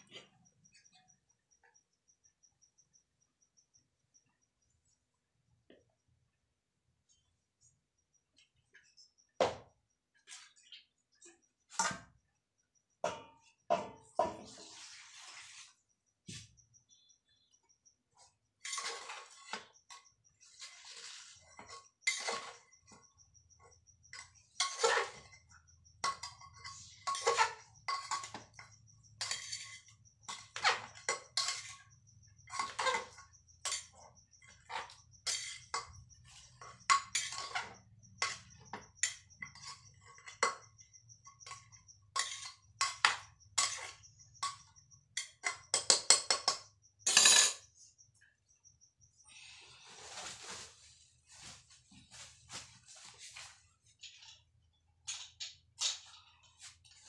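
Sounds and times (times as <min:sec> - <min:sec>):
metal spatula scraping a pot: 0:13.4 - 0:15.9, 0:18.2 - 0:46.6.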